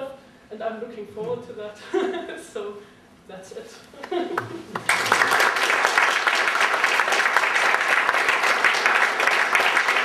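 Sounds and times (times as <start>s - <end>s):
audience applauding: 4.4s - 10.0s.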